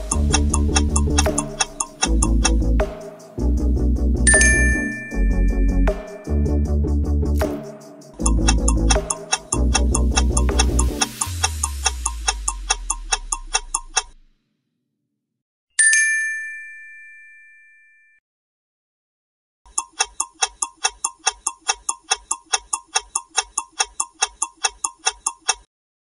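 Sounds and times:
fast clock ticking: 0.0 - 3.0, 8.2 - 14.2, 19.7 - 25.7
bell-like ding: 4.3 - 6.7, 15.8 - 18.2.

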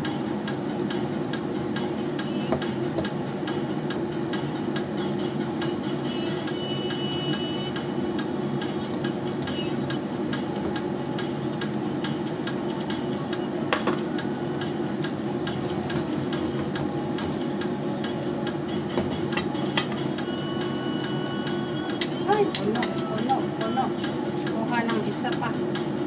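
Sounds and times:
frying oil sizzling: 5.8 - 24.3.

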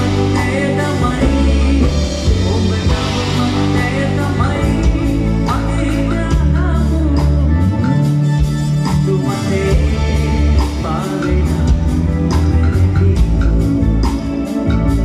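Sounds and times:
man singing: 0.0 - 14.2
drum kit and cymbals: 0.0 - 15.0
electric bass guitar: 0.0 - 15.0
keyboards: 0.0 - 15.0.

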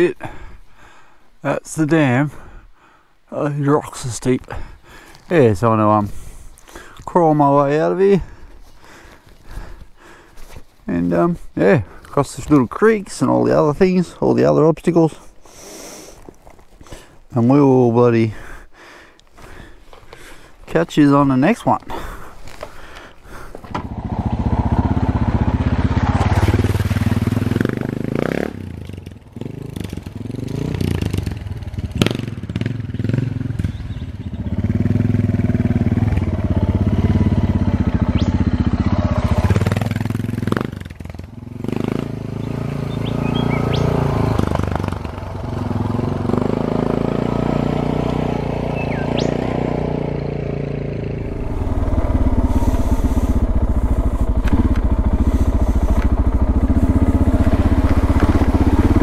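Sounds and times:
motorcycle engine revving: 21.6 - 59.0.

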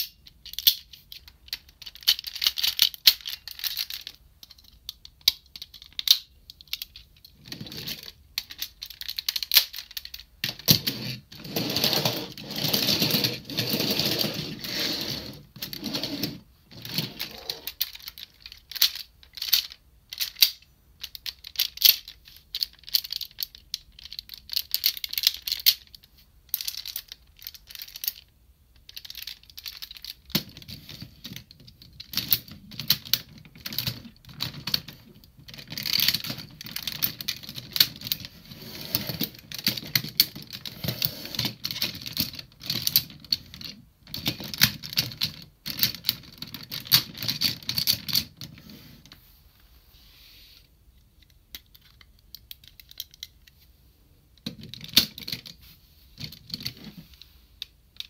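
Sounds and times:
plastic toy parts clicking: 0.0 - 10.8, 16.8 - 38.4, 39.1 - 48.6, 51.0 - 53.6, 57.6 - 58.0.

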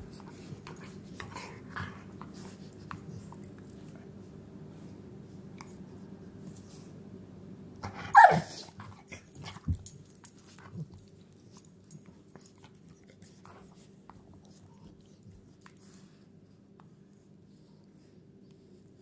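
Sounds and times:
dog yelping bark: 8.1 - 8.6.

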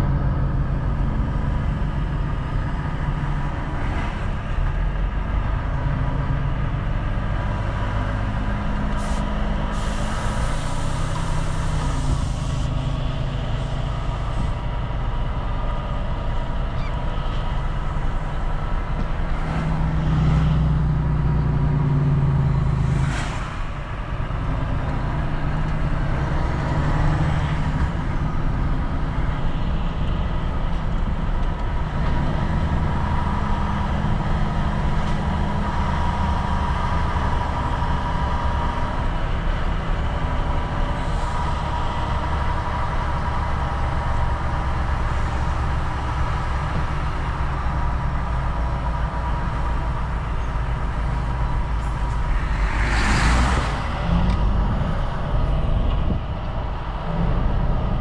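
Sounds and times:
truck diesel engine running: 0.0 - 58.0
air brake hisses: 9.0 - 12.8.

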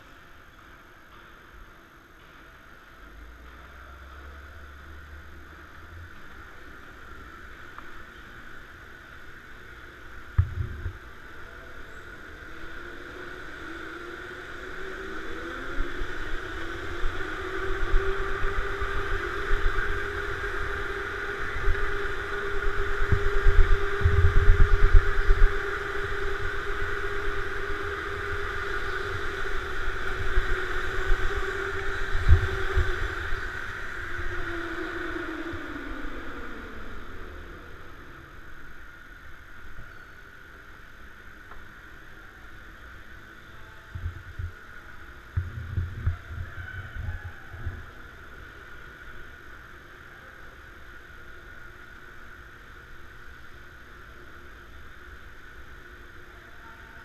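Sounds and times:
low rumbling: 3.8 - 50.3
go-kart motor whining: 10.7 - 39.2.

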